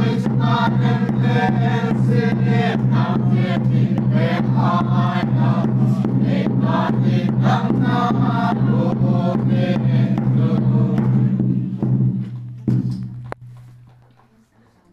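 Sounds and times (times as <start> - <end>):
congregation singing a hymn: 0.0 - 11.8.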